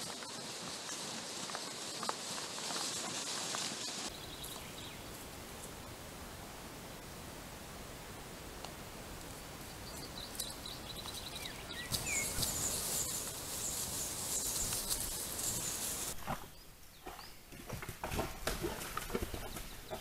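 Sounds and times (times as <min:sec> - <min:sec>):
steady hiss: 0:00.0 - 0:16.2
chorus of night insects: 0:09.2 - 0:16.1.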